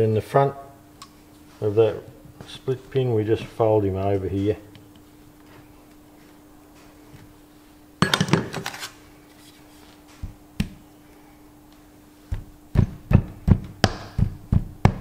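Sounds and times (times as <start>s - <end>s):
faint steady hum: 0.0s - 15.0s
metal tools clattering: 8.0s - 8.8s.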